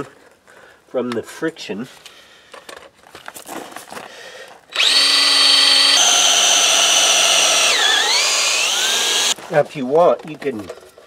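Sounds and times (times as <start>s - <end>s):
cordless drill whining: 4.7s - 9.4s.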